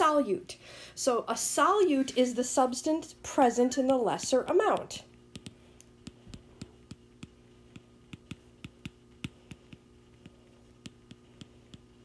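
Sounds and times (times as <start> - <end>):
steady low hum: 0.0 - 12.0
stylus tapping on glass screen: 4.7 - 11.9.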